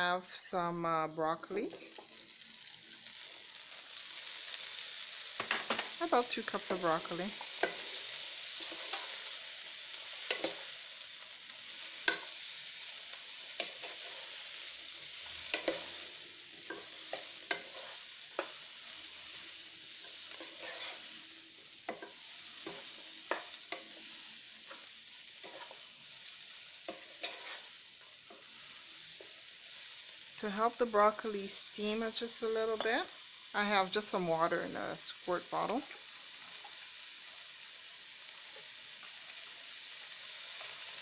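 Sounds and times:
broccoli sizzling in hot oil: 0:00.0 - 0:41.0
spatula scraping and knocking pan: 0:15.4 - 0:16.0, 0:16.6 - 0:18.6, 0:20.0 - 0:21.1, 0:21.8 - 0:25.9, 0:26.8 - 0:27.7.

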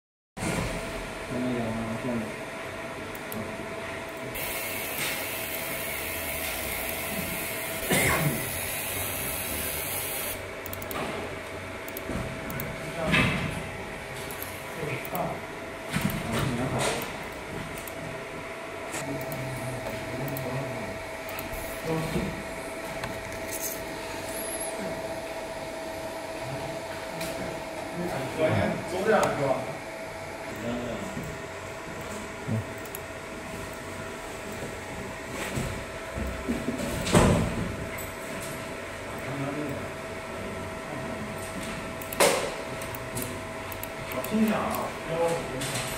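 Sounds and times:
fan and motor hum: 0:00.4 - 0:45.9
mid-pitched whine: 0:04.1 - 0:11.0, 0:18.6 - 0:35.6.

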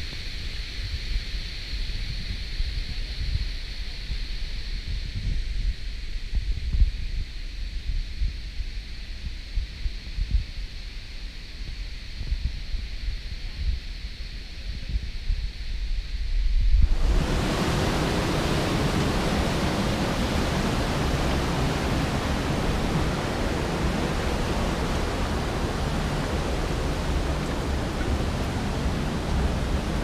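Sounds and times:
creek rushing over cascades: 0:16.8 - 0:30.0.

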